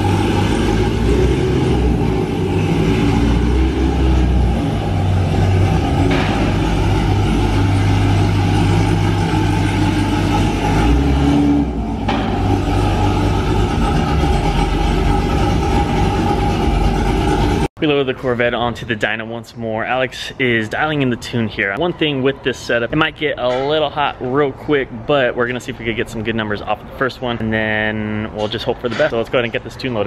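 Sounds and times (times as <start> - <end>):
car engine idling: 0.0 - 17.7.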